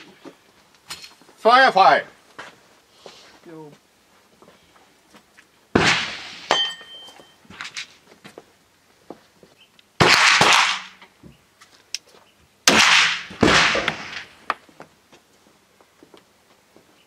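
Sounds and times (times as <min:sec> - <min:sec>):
gunshots with reverberation: 0:05.7 - 0:06.8, 0:10.0 - 0:11.0, 0:12.6 - 0:14.4.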